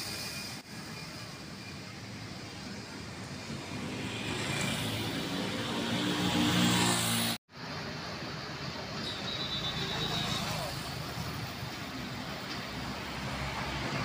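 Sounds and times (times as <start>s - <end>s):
street traffic noise: 0.0s - 14.0s
motorcycle passing: 3.6s - 7.4s.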